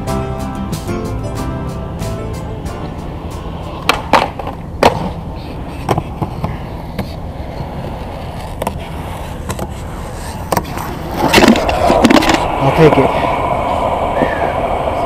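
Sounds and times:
skateboard rolling on concrete: 0.0 - 15.0
skateboard clacks: 3.7 - 12.6.

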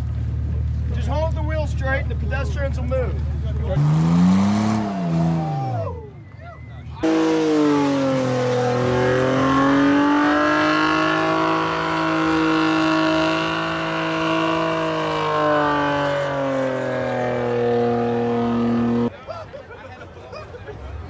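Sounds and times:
car engine at high revs: 3.5 - 5.8, 7.0 - 19.1.

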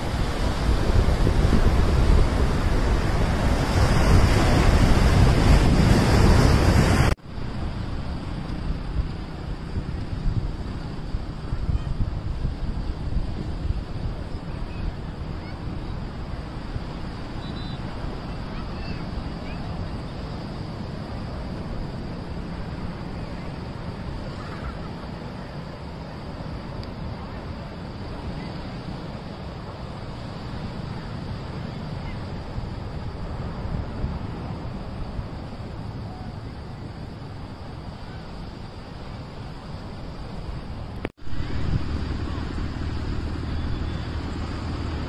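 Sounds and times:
sea surf rushing: 0.0 - 45.0
wind buffeting microphone: 0.0 - 45.0
heavy low rumble: 41.2 - 45.0.

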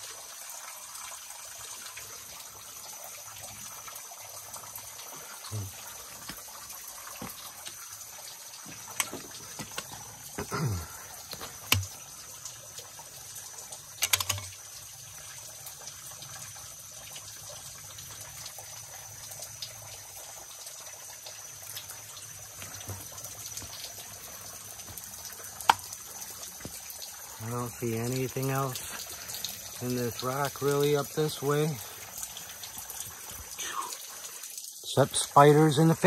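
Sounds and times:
creek water trickling over rock: 0.0 - 36.0
sharp knocks and scrapes: 8.7 - 10.5.

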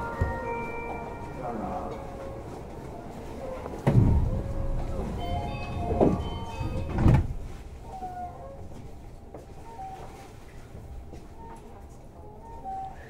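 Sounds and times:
door chime: 0.0 - 2.8, 4.0 - 7.5
train doors closing: 0.0 - 13.0.

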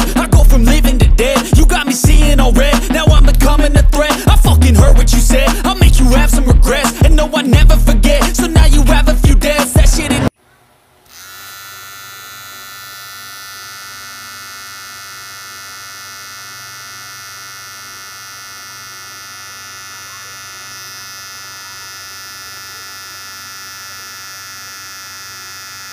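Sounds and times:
toy car motor whine: 11.1 - 25.9.

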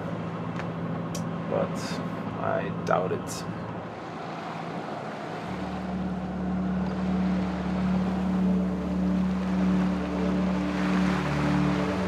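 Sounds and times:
boat engine drone: 0.0 - 12.0
soft background music: 0.0 - 12.0
water noise: 0.0 - 12.0
wind: 0.0 - 12.0.

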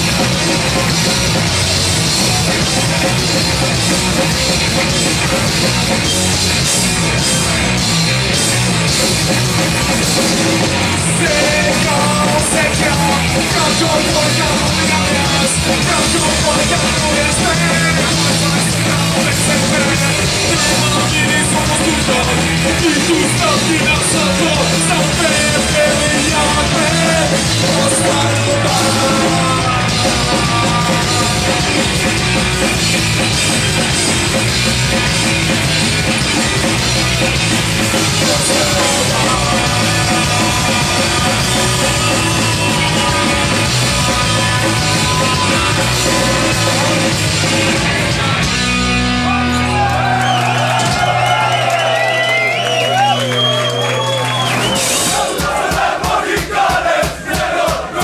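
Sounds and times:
punk rock band playing: 0.0 - 58.0
shouted vocals: 49.2 - 58.0.

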